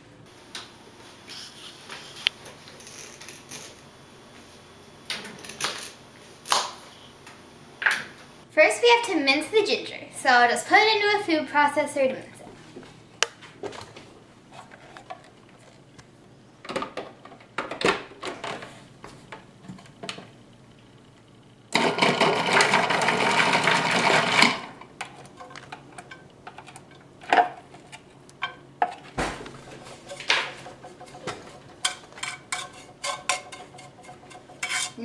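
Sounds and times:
food processor running: 0:21.7 - 0:24.9.

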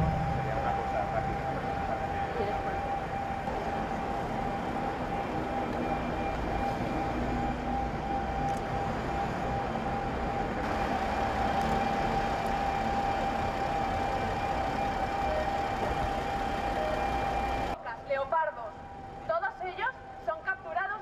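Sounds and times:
thin high tone: 0:00.0 - 0:02.9
traffic rumble: 0:00.0 - 0:17.8.

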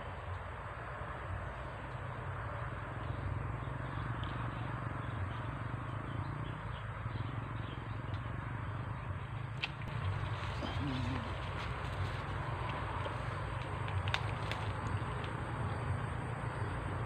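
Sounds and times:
small animals chirping: 0:09.8 - 0:11.8.

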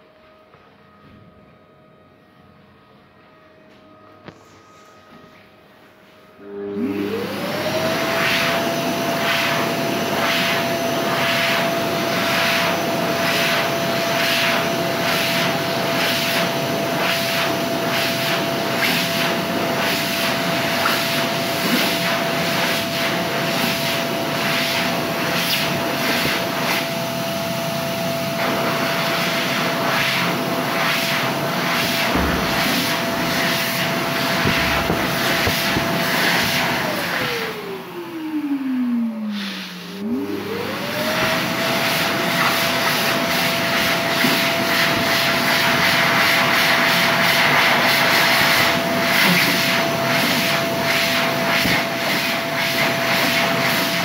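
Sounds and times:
hand dryer motor whine: 0:03.5 - 0:54.0.

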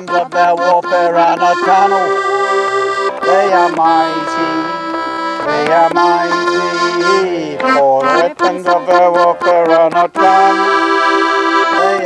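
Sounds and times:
man and woman singing: 0:00.0 - 0:10.8, 0:11.7 - 0:12.0
piano accordion playing: 0:00.0 - 0:12.0.

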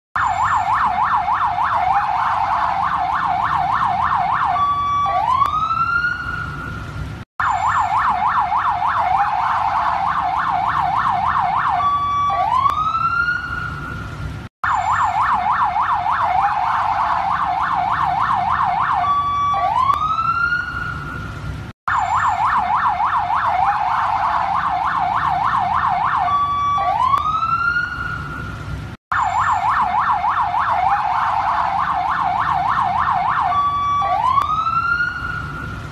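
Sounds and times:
alarm siren warbling yelp: 0:00.2 - 0:06.6, 0:07.4 - 0:13.8, 0:14.6 - 0:21.0, 0:21.9 - 0:28.3, 0:29.1 - 0:35.6
rising siren whoop: 0:00.2 - 0:06.6, 0:07.4 - 0:13.8, 0:14.6 - 0:21.0, 0:21.9 - 0:28.3, 0:29.1 - 0:35.7.

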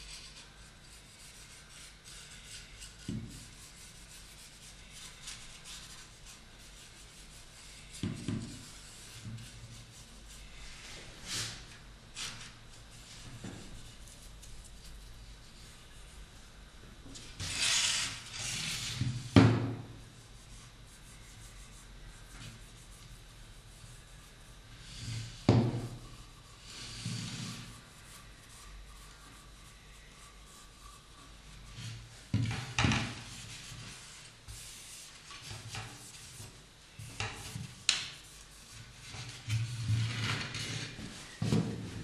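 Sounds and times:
brush bristles scratching on wood: 0:20.2 - 0:32.2.

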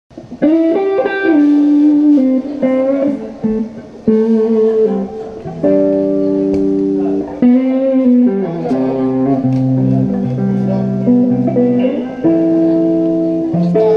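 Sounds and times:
guitar chords ringing: 0:00.1 - 0:13.9.

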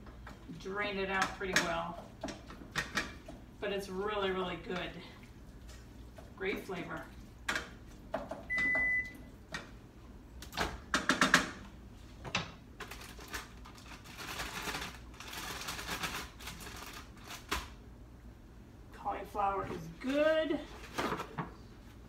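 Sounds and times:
microwave oven beep: 0:08.4 - 0:09.3
crinkling rustle: 0:12.8 - 0:17.6.

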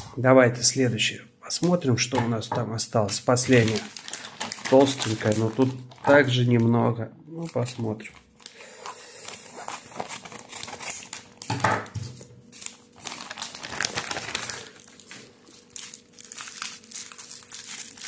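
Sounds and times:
bubble wrap rustling: 0:03.1 - 0:06.6, 0:07.4 - 0:18.0
plastic mailer crinkling: 0:03.3 - 0:06.6, 0:07.4 - 0:18.0
scissors cutting plastic: 0:09.2 - 0:18.0.

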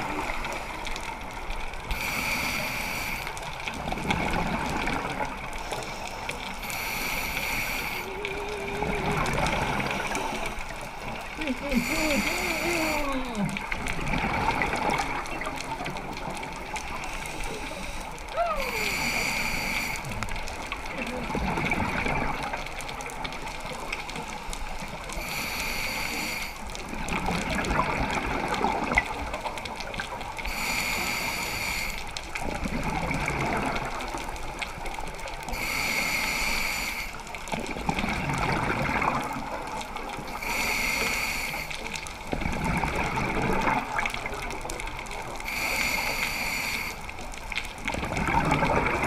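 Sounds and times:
regulator inhalation hiss: 0:01.9 - 0:03.4, 0:05.7 - 0:08.2, 0:11.7 - 0:13.3, 0:18.7 - 0:20.1, 0:25.2 - 0:26.6, 0:30.5 - 0:32.1, 0:35.6 - 0:37.2, 0:40.3 - 0:41.8, 0:45.4 - 0:47.1
gurgle of exhaled bubbles: 0:03.8 - 0:05.6, 0:08.0 - 0:16.9, 0:20.1 - 0:23.4, 0:26.8 - 0:30.3, 0:32.4 - 0:34.4, 0:37.4 - 0:40.2, 0:42.2 - 0:45.3, 0:47.6 - 0:49.0.

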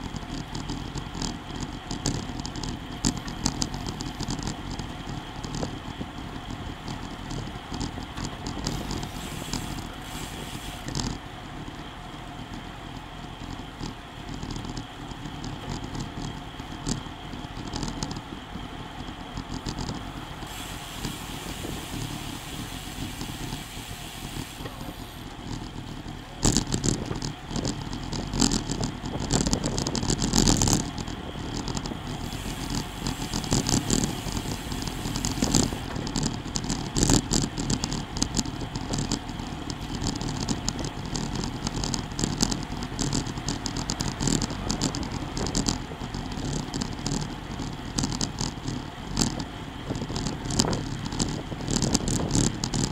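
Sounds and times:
bike rattling and clicking: 0:00.0 - 0:52.9
bike tyres on asphalt: 0:00.0 - 0:52.9
wind on microphone: 0:19.4 - 0:52.9.

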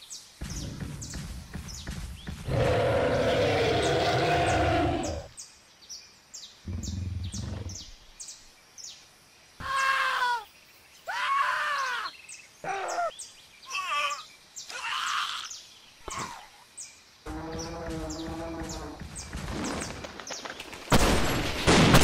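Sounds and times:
dinosaur roar: 0:02.5 - 0:05.3.

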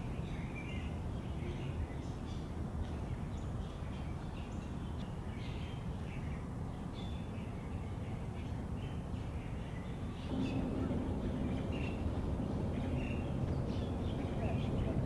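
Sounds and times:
birds chirping: 0:00.0 - 0:15.0
low background rumble: 0:10.3 - 0:15.0.

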